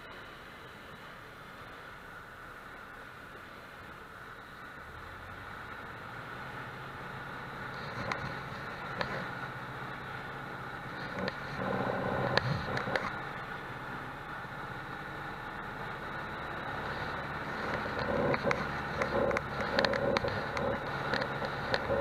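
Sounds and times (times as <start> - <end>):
light aircraft engine running: 0.0 - 22.0.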